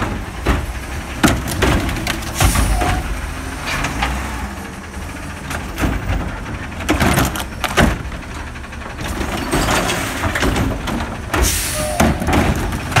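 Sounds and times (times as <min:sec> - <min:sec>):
recycling truck running: 0:00.0 - 0:13.0
clatter of cart upended: 0:06.8 - 0:08.0, 0:09.0 - 0:11.2.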